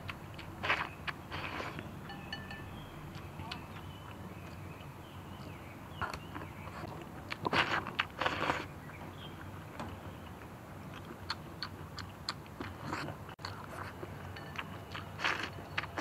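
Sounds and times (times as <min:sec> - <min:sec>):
person chewing food: 0:00.0 - 0:04.6, 0:05.4 - 0:16.0
slurping broth: 0:00.6 - 0:01.8, 0:07.4 - 0:08.7, 0:15.0 - 0:16.0.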